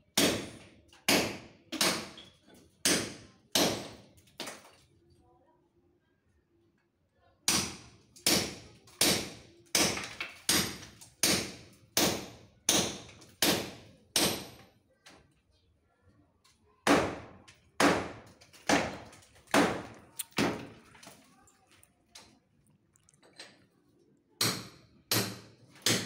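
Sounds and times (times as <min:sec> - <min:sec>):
hammer striking chisel: 0:17.8 - 0:20.8, 0:24.4 - 0:26.0.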